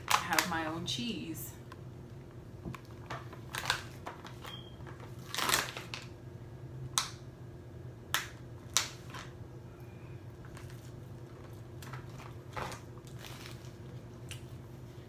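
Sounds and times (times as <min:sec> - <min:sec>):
plastic packaging crackling: 0:02.8 - 0:06.2, 0:10.4 - 0:14.6.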